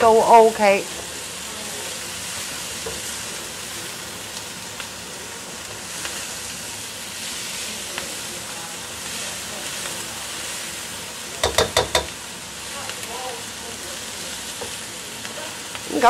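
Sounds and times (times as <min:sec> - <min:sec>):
vegetables sizzling in a pan: 0:00.0 - 0:16.0
spatula knocking on a pan: 0:11.4 - 0:12.2.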